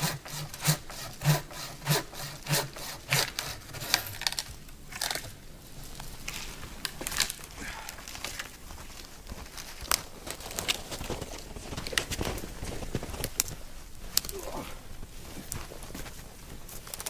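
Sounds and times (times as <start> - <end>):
footsteps crunching through snow: 5.6 - 17.0
twigs snapping: 6.2 - 8.5, 13.2 - 14.4.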